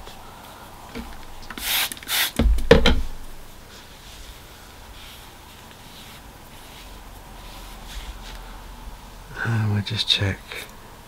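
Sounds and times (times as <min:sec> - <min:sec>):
low knock: 0:02.4 - 0:03.2
cloth rubbing a blade: 0:03.6 - 0:09.1.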